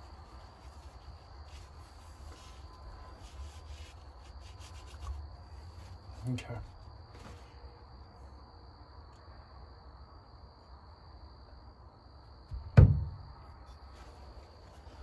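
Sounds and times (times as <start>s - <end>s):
small knock: 12.5s - 13.3s
heavy metal thump: 12.5s - 13.4s.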